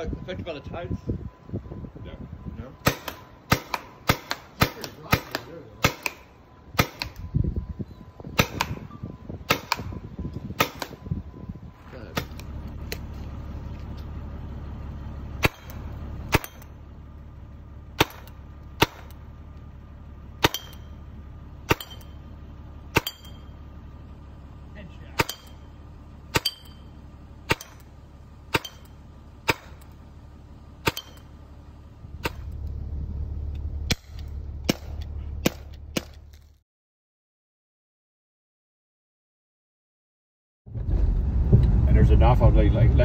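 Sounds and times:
short ringing tone: 23.0s - 23.7s.

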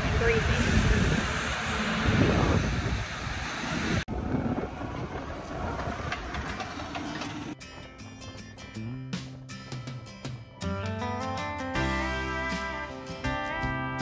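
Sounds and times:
wind buffeting microphone: 0.0s - 7.6s
outdoor rumble: 0.0s - 7.9s
acoustic guitar music: 7.5s - 14.0s.

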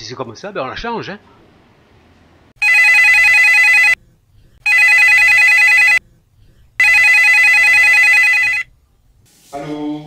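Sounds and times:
telephone warbling ring: 2.6s - 4.0s, 4.7s - 6.0s, 6.8s - 8.7s.

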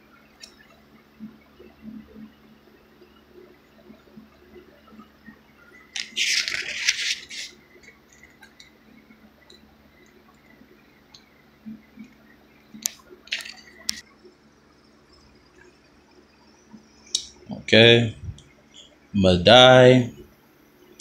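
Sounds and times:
phone handling rustle: 6.0s - 7.5s
finger rubbing paper page: 6.0s - 7.6s.

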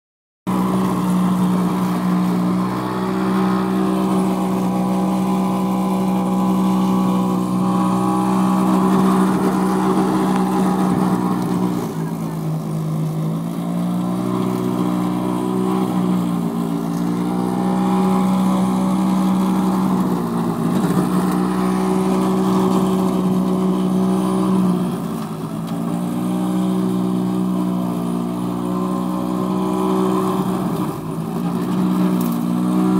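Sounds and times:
electric lawn mower motor humming: 0.5s - 32.9s.

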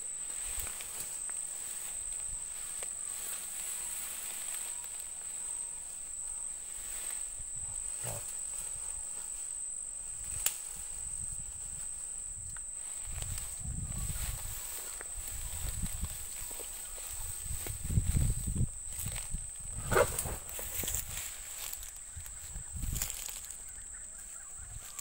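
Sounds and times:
faint rustles: 0.0s - 25.0s
insects buzzing: 0.0s - 25.0s.

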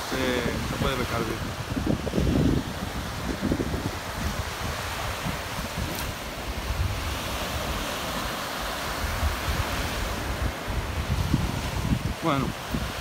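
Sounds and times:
small waves breaking on sand: 0.0s - 13.0s
wind gusting on microphone: 0.0s - 13.0s.

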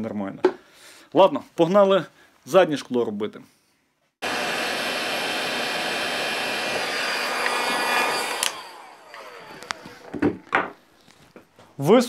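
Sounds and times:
fan winding down whine: 4.2s - 10.5s
hot-air gun blowing: 4.2s - 10.5s.

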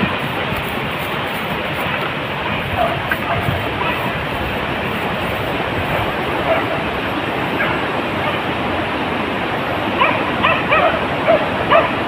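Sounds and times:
steady rushing noise: 0.0s - 12.0s
dog yelping: 2.4s - 4.6s, 5.8s - 8.5s, 10.0s - 12.0s.

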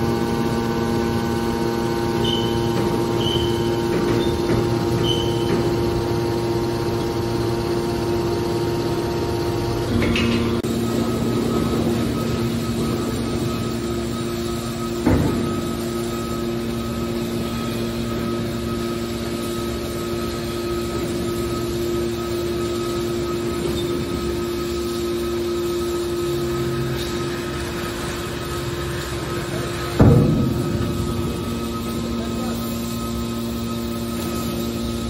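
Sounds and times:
hydraulic baler motor hum: 0.0s - 35.0s.

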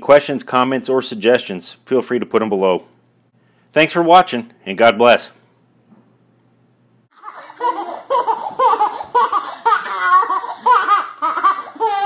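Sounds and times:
baby giggling: 7.2s - 12.0s.

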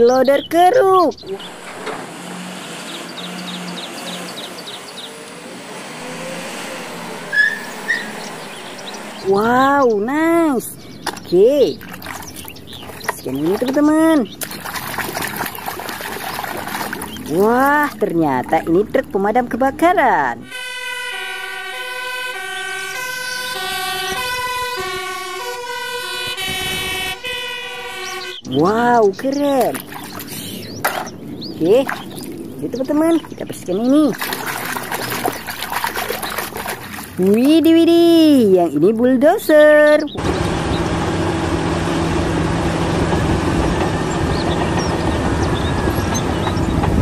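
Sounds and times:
diesel engine running: 0.0s - 27.0s, 28.5s - 47.0s
two-tone fire engine siren: 1.3s - 9.5s, 20.4s - 28.6s.

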